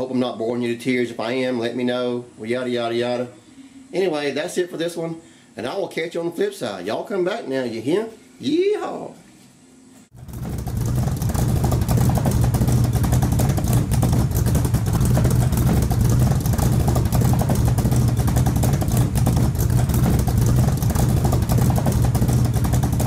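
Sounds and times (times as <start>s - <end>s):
motor vehicle engine running: 10.1s - 23.0s.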